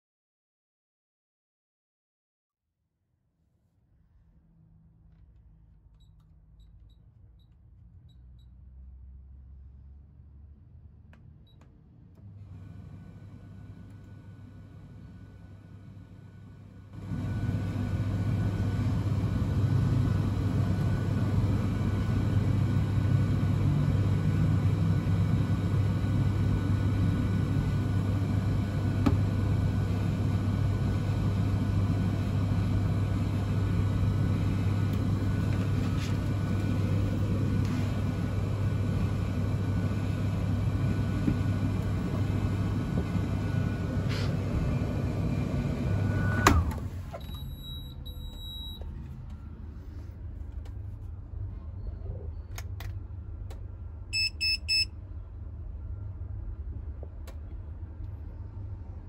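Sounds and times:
tumble dryer humming: 16.1 - 49.4
short electronic beeps: 47.2 - 48.8, 54.2 - 54.9.

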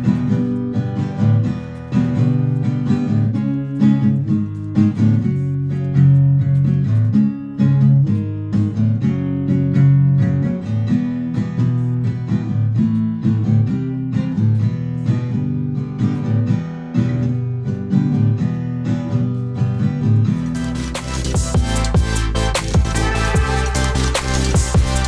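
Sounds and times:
acoustic guitar: 0.0 - 25.0
electronic dance music: 20.4 - 25.0.

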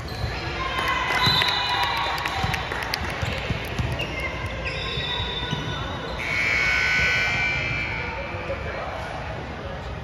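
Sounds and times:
basketball bouncing on court: 2.3 - 5.8
shoe squeaks: 3.8 - 8.2.

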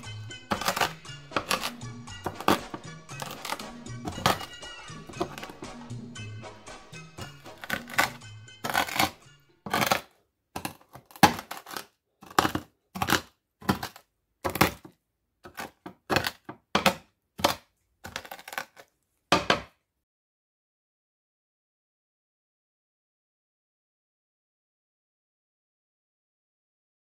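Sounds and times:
music: 0.0 - 10.0.

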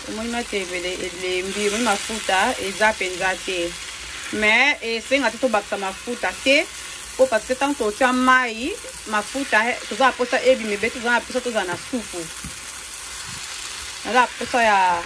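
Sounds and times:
leaves sizzling in frying pan: 0.0 - 15.0
spatula stirring: 8.8 - 15.0
person talking: 14.0 - 15.0.

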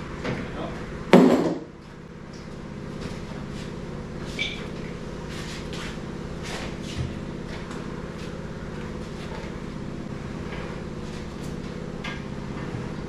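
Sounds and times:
steady mechanical hum: 0.0 - 13.0
loud clatter: 1.1 - 1.7
knocks and clanks: 1.1 - 1.8.

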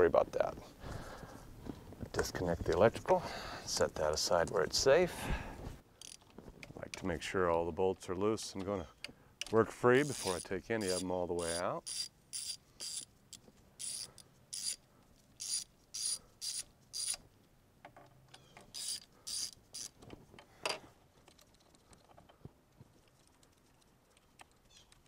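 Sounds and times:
socket ratchet clicking: 9.4 - 14.8, 15.4 - 17.2, 18.7 - 20.0.

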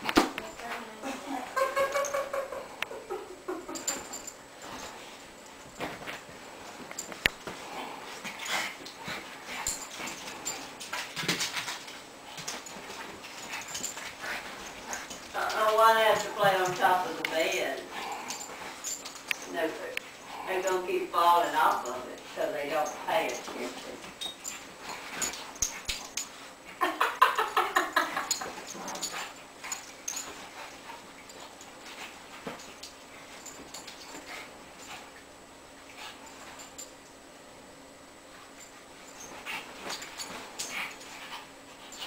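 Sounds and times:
dogs making playful noises: 0.4 - 37.2, 38.2 - 42.0
dogs yipping and growling: 1.4 - 4.9, 17.8 - 19.5.

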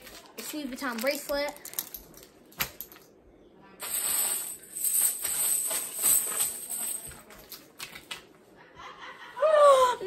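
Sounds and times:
gift packaging rustling: 0.0 - 1.9.

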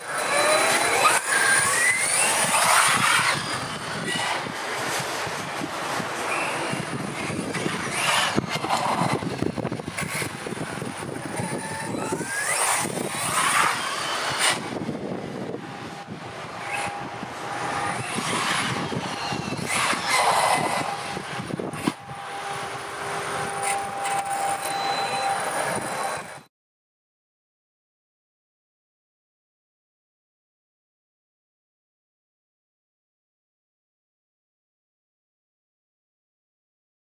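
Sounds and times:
electric motor whining: 0.0 - 26.4.

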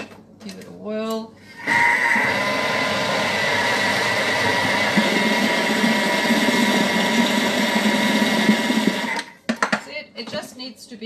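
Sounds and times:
food processor motor whine: 1.6 - 9.4.

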